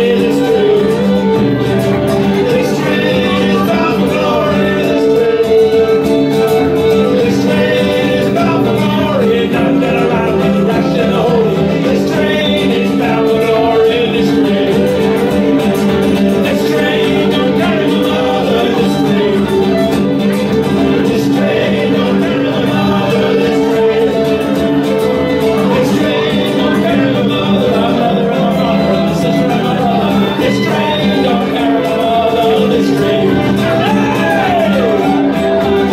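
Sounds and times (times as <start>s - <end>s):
acoustic guitar: 0.0s - 35.9s
fiddle: 0.0s - 35.9s
harmonica lead: 0.0s - 35.9s.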